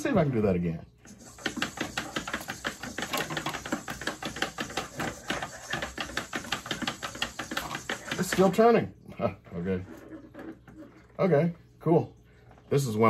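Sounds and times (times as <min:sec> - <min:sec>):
robot legs tapping on desk: 0:01.1 - 0:08.6.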